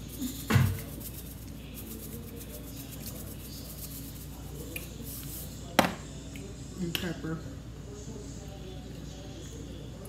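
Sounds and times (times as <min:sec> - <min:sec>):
salt grains rattling from shaker: 0:00.0 - 0:05.5.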